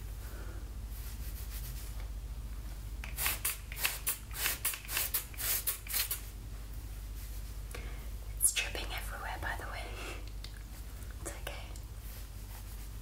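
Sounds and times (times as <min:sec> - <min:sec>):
spray bottle spritzing: 0:03.0 - 0:06.3.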